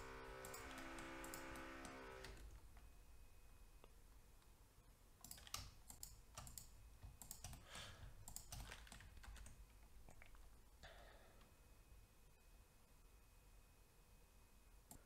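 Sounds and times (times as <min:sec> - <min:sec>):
computer keyboard clicking: 0:05.2 - 0:10.5.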